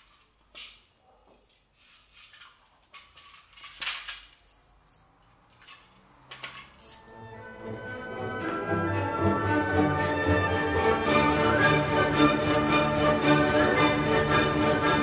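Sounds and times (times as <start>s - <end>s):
clothing rustling: 0.0s - 7.2s.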